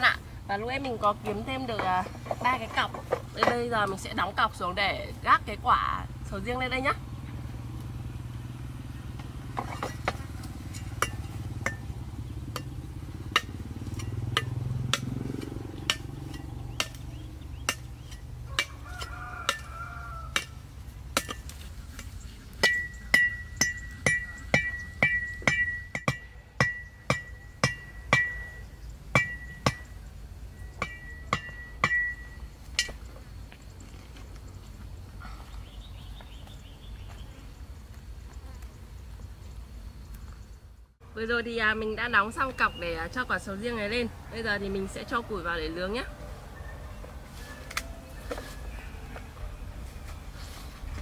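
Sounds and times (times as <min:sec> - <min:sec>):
knife blade striking bamboo: 0:13.3 - 0:28.5.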